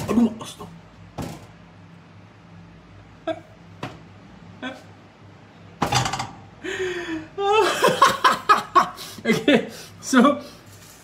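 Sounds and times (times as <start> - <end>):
man laughing: 6.7 - 9.9.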